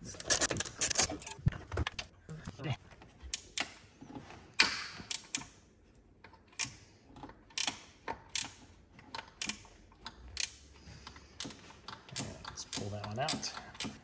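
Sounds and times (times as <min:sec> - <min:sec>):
hand tools clicking and clanking: 0:00.1 - 0:02.1, 0:06.2 - 0:14.0.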